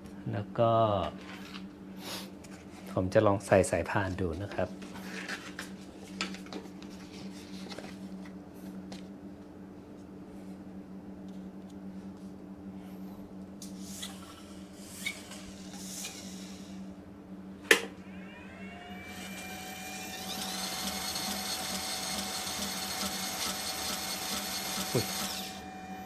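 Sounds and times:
belt grinder motor whining: 18.0s - 26.0s.

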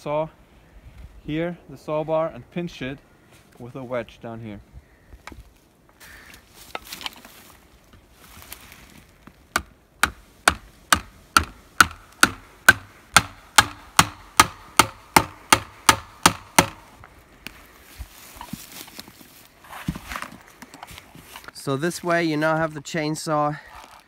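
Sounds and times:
axe hammering wedge: 9.5s - 16.9s.

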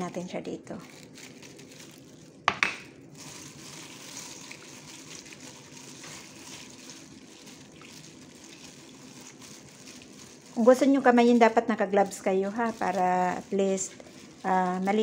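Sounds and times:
knocks on metal bowl: 2.5s - 2.8s.

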